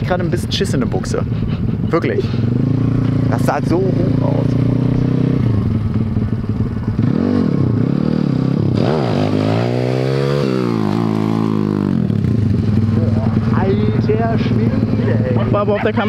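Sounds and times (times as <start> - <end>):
small engine revving: 6.9 - 16.0.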